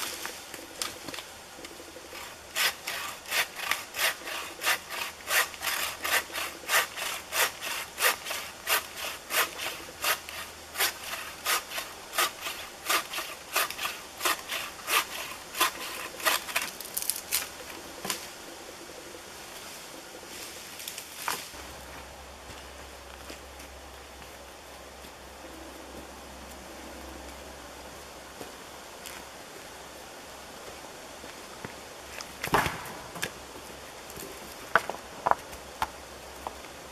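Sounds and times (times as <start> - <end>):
hand saw rasping through log: 2.2 - 16.8.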